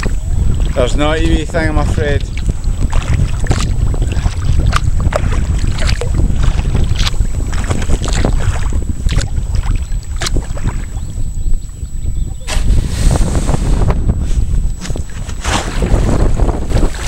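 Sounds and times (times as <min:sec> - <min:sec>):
wind buffeting microphone: 0:00.0 - 0:17.0
paddle splashing in water: 0:01.8 - 0:11.1, 0:14.8 - 0:17.0.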